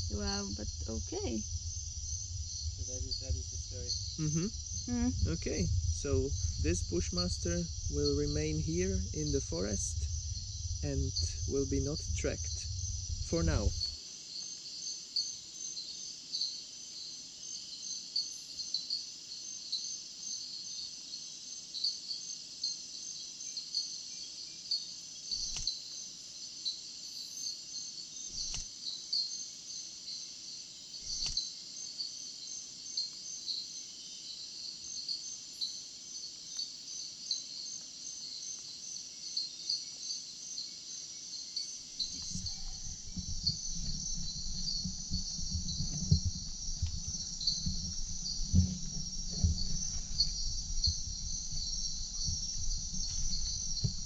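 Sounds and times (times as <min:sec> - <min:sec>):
insects trilling and chirping: 0:00.0 - 0:54.0
faint clicks: 0:28.4 - 0:28.7, 0:31.1 - 0:31.4
low rustling: 0:42.0 - 0:54.0.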